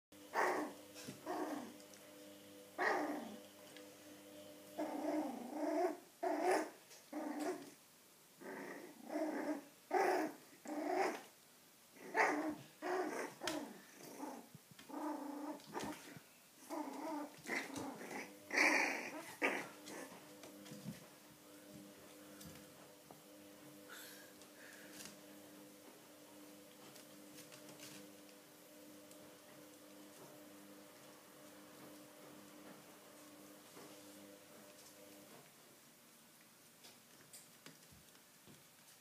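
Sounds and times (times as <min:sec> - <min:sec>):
puppies growling and yapping: 0:00.2 - 0:03.8, 0:04.7 - 0:07.8, 0:08.4 - 0:11.3, 0:12.0 - 0:21.1.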